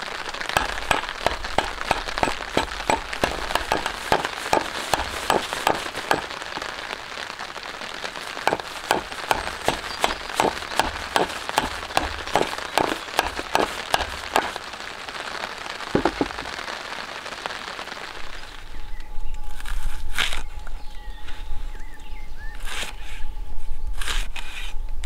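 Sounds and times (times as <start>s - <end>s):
hatchet striking wood: 0.5s - 6.6s, 8.5s - 14.6s.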